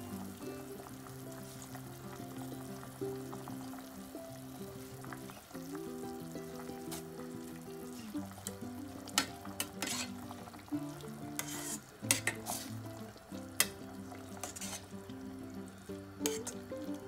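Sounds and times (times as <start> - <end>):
background music with held notes: 0.0 - 17.0
ladle stirring soup in metal pot: 8.4 - 15.0, 16.2 - 17.0.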